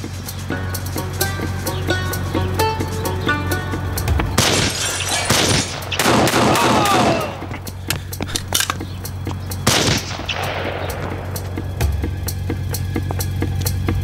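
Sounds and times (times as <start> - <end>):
background music with low drone: 0.0 - 14.0
gunshots: 4.4 - 7.6, 9.6 - 11.6.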